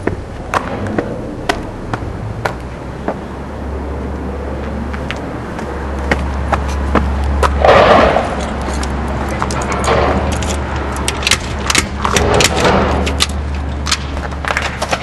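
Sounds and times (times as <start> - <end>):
footsteps on pavement: 0.0 - 3.4, 4.6 - 15.0
rush of noise: 0.0 - 15.0
steady low rumble: 0.0 - 15.0.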